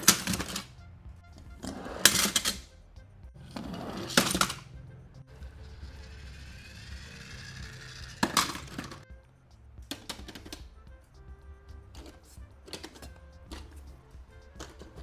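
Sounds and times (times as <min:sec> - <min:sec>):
toy cars clattering down ramp: 0:00.0 - 0:00.7, 0:02.0 - 0:02.6, 0:04.0 - 0:04.7, 0:05.7 - 0:09.0.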